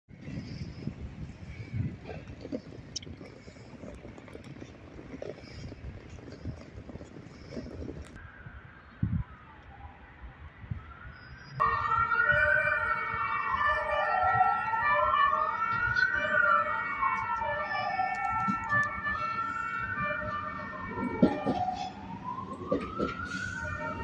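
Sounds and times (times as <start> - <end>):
siren wailing: 8.5 - 24.0.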